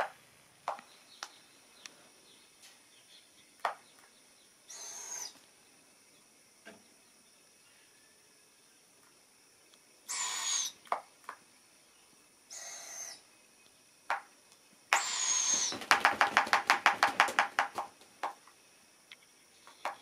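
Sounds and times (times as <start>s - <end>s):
owlets raspy begging calls: 4.7s - 5.4s, 10.1s - 10.8s, 12.5s - 13.2s, 14.9s - 15.8s
owlet wings flapping: 15.0s - 18.4s.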